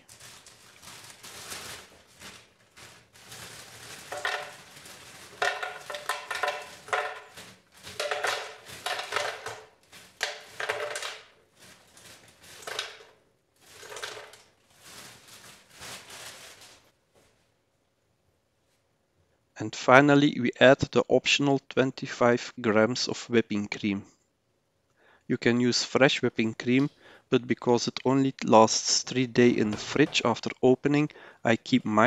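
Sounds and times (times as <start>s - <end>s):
frozen pieces clattering into pitcher: 0.0s - 16.8s
plastic bag crinkling: 0.0s - 17.0s.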